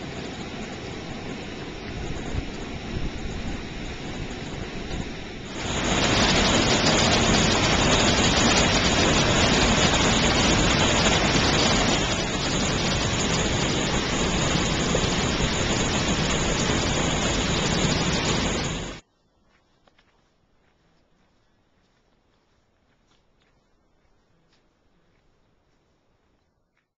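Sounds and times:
waterfall rushing over rocks: 5.4 - 19.0.

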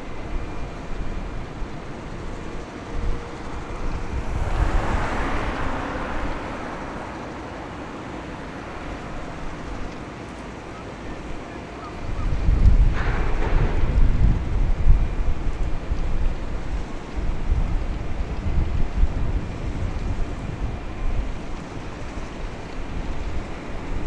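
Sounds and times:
wind buffeting microphone: 0.0 - 11.4, 12.0 - 24.0
faint steady ship hum: 0.0 - 24.0.

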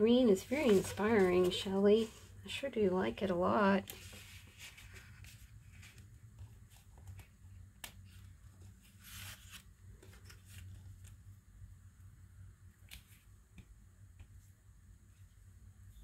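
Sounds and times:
low steady hum: 0.0 - 16.0
paper rustling on table: 0.4 - 2.3, 3.9 - 11.2.

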